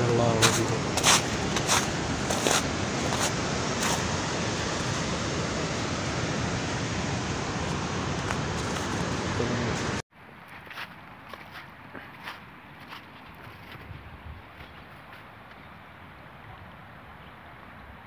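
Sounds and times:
wind on microphone: 13.6s - 14.9s.

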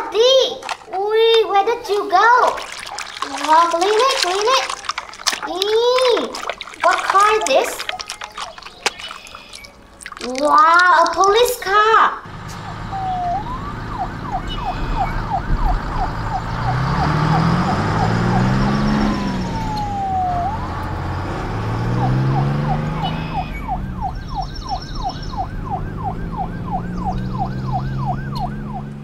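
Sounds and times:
low engine revving: 12.2s - 29.0s
police siren yelping: 12.3s - 29.0s.

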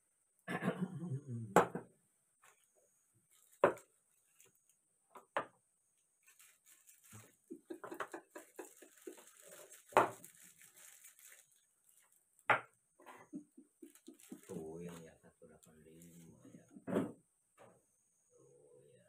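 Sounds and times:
plastic wrapper crinkling: 3.3s - 4.8s, 6.2s - 12.5s, 13.8s - 16.4s.

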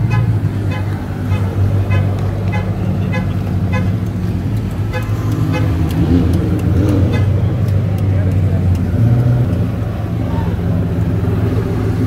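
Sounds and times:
car engine droning at low speed: 0.0s - 12.0s.

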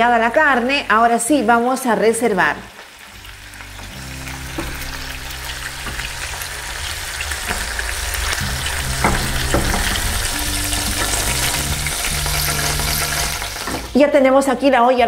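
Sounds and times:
meat sizzling in hot oil: 0.0s - 14.1s
background music with low notes: 3.0s - 15.0s.

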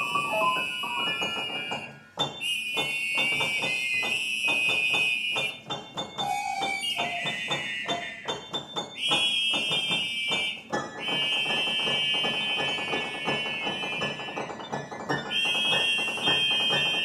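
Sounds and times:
out-of-tune upright piano: 0.0s - 17.0s
shrill recorder-keyboard notes: 0.0s - 17.0s.

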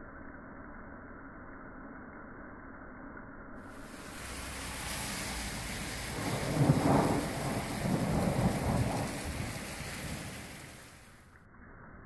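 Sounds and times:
steady rain: 3.7s - 11.3s
thunder rumbling: 3.8s - 11.1s.

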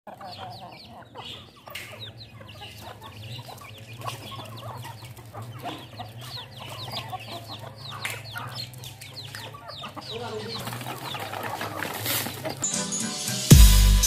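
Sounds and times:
chickens clucking: 0.1s - 13.4s
chicks peeping: 0.1s - 14.0s.

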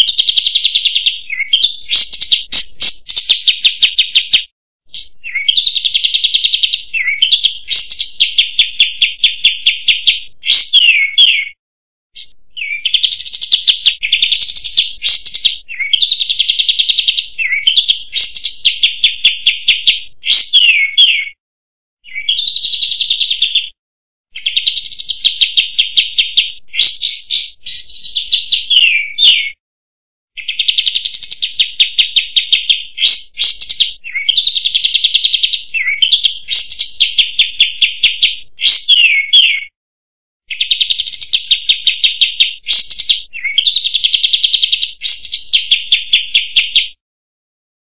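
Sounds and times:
bird singing: 0.0s - 11.6s, 12.2s - 21.4s, 22.0s - 29.6s, 30.4s - 39.8s, 40.5s - 47.0s.

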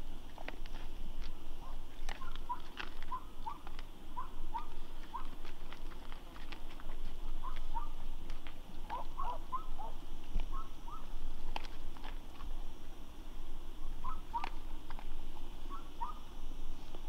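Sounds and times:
boar chewing crunching clicks: 0.2s - 12.7s, 13.9s - 16.2s
boar squeaking: 1.6s - 5.4s, 7.2s - 8.0s, 8.9s - 11.2s, 13.9s - 14.6s, 15.7s - 16.3s.

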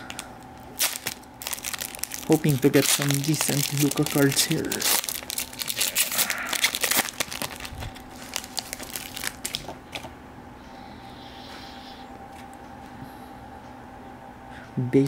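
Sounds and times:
foil wrapper crinkling and tearing: 0.0s - 10.1s.

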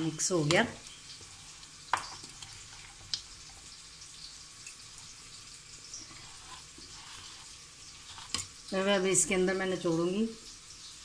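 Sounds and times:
faint steady hiss: 0.0s - 11.0s
spoon mixing food in bowl: 5.8s - 8.7s.

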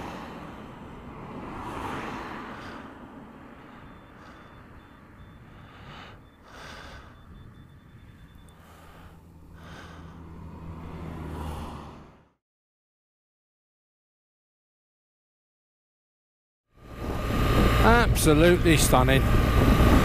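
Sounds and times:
low engine hum: 0.0s - 12.4s, 16.8s - 20.0s
wind buffeting microphone: 0.6s - 9.0s, 16.9s - 20.0s.

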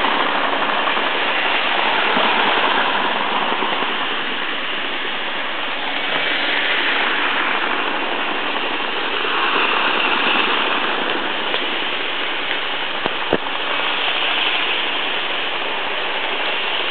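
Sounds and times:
model trains rattling on metal track: 0.0s - 16.9s.

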